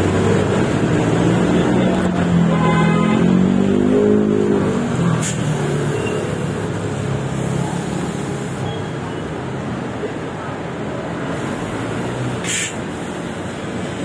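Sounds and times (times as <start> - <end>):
short hiss: 5.2 - 5.5, 12.4 - 13.2.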